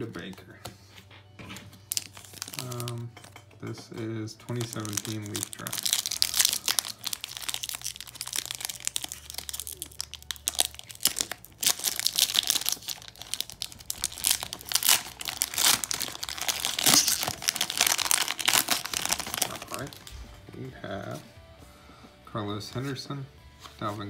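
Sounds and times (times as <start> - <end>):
foil wrapper crinkling and tearing: 1.9 - 3.3, 4.5 - 20.2.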